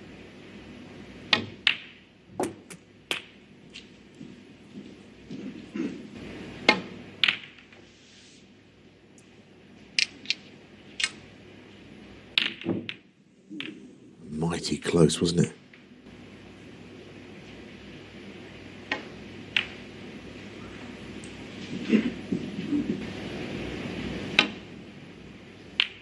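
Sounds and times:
cue tip striking ball: 0:01.3 - 0:03.4, 0:04.8 - 0:07.8, 0:12.3 - 0:13.9, 0:18.9 - 0:20.0, 0:24.3 - 0:24.7
snooker balls clicking: 0:01.3 - 0:07.8, 0:09.2 - 0:11.2, 0:12.3 - 0:13.9, 0:18.8 - 0:20.0, 0:25.7 - 0:26.0
faint arena hush: 0:03.8 - 0:06.6, 0:07.7 - 0:08.6, 0:20.3 - 0:24.0.

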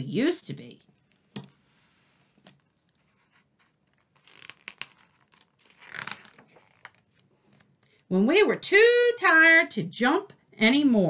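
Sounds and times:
book page rustling and turning: 0:01.0 - 0:07.8.

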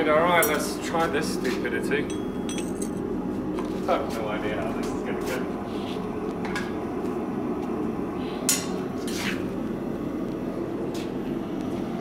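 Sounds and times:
sharp metal clinks: 0:00.4 - 0:00.8, 0:02.0 - 0:03.0.

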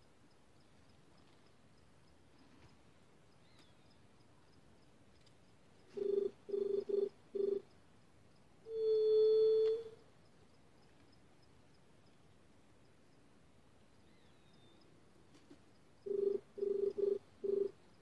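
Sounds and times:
dove cooing: 0:05.9 - 0:07.6, 0:08.7 - 0:10.0, 0:16.1 - 0:17.8.

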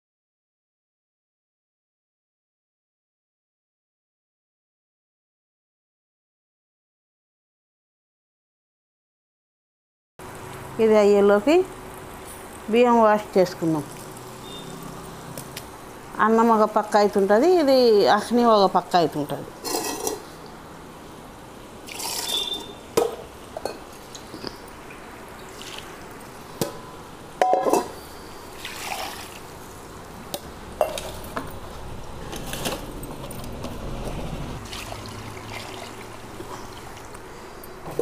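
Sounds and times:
steel vessels clinking: 0:19.6 - 0:20.2, 0:21.9 - 0:23.8
water pouring into a pot: 0:21.8 - 0:22.7, 0:25.4 - 0:26.1, 0:28.5 - 0:29.6, 0:34.6 - 0:37.1.

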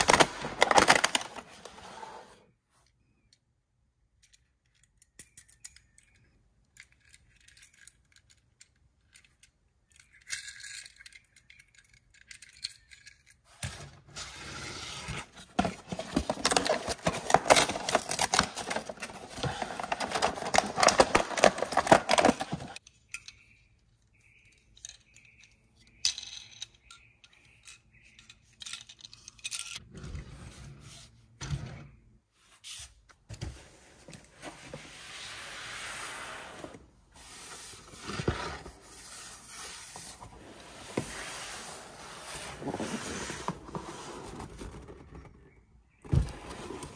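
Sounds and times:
cardboard packaging handled: 0:00.0 - 0:01.8, 0:15.0 - 0:22.8.

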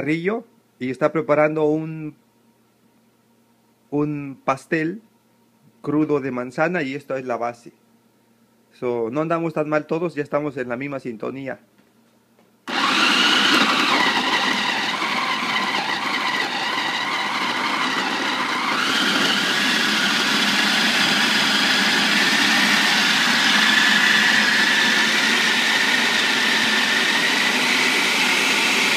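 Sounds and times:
food processor motor whining: 0:12.7 - 0:28.9.

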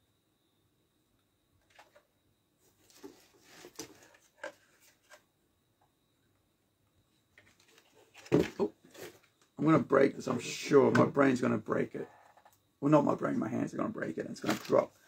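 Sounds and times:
packaging rustling: 0:14.4 - 0:14.9.

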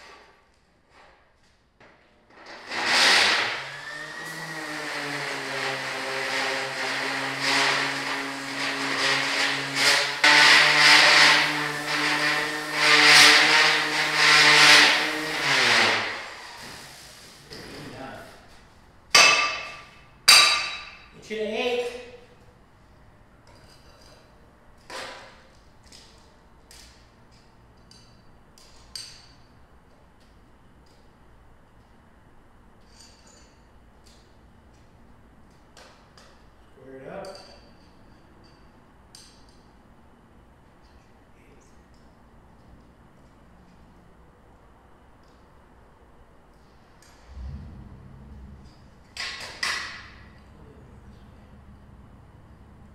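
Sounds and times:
handheld grinder motor whine: 0:02.7 - 0:16.3
scraping and clinking on steel: 0:23.4 - 0:29.6, 0:32.8 - 0:34.8, 0:37.2 - 0:39.8.

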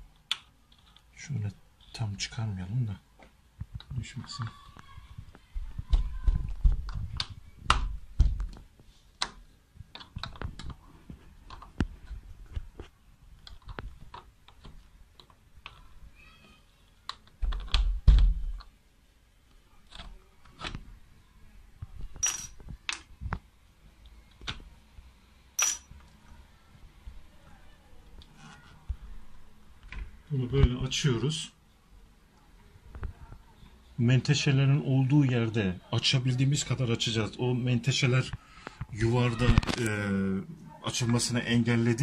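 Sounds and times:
ringing metallic clinks: 0:25.6 - 0:25.9.

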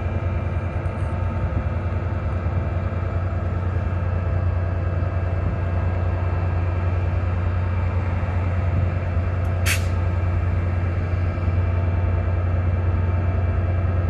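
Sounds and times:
locomotive diesel engines humming: 0:00.0 - 0:14.0
hissing air burst: 0:09.6 - 0:10.0.

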